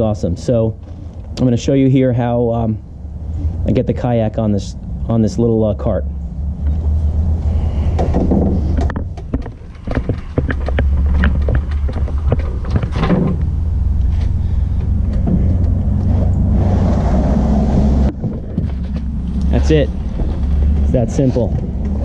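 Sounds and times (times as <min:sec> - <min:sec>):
steady low rumble: 0:00.0 - 0:22.0
knocks and rubbing: 0:07.8 - 0:22.0.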